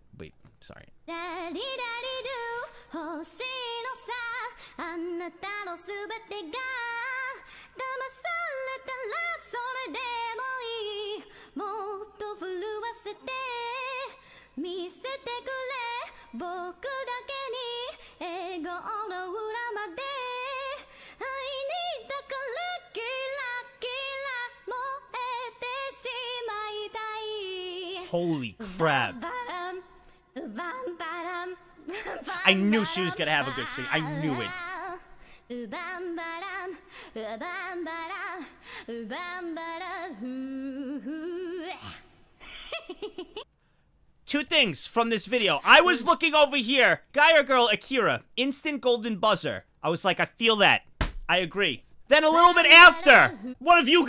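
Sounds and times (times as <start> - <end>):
woman singing a cappella: 1.1 - 42.2
singer breathing: 4.5 - 4.8, 7.4 - 7.8, 11.3 - 11.6, 14.2 - 14.6, 20.9 - 21.2, 35.1 - 35.5.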